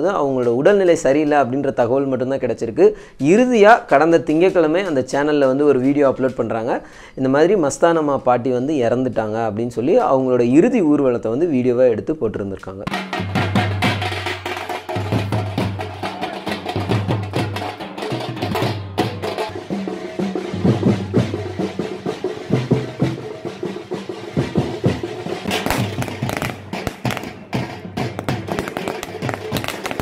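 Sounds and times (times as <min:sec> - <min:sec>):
drums beaten with sticks: 0:12.8 - 0:30.0
firecracker cracks: 0:25.5 - 0:30.0.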